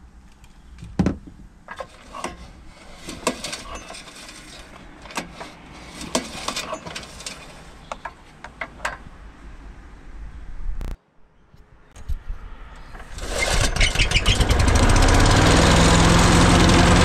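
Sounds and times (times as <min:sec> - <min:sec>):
pull cord being drawn: 0:01.8 - 0:08.0
starter housing clicks and knocks: 0:03.1 - 0:09.1.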